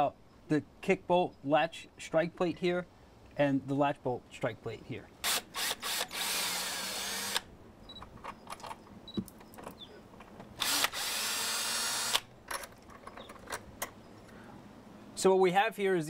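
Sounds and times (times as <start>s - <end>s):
cordless drill running: 5.3s - 7.5s, 10.6s - 12.3s.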